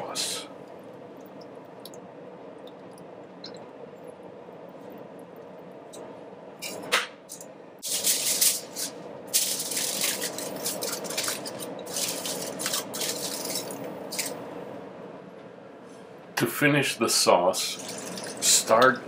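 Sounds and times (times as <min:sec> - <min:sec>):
aluminium foil crinkling: 0:07.8 - 0:14.4.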